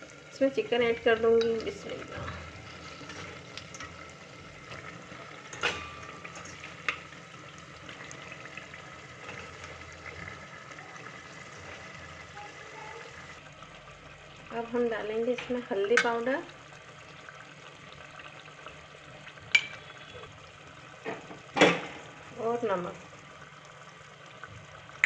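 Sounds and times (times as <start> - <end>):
chicken sizzling in hot oil: 0.0 - 25.0
spoon clinking against metal pot: 19.5 - 20.0.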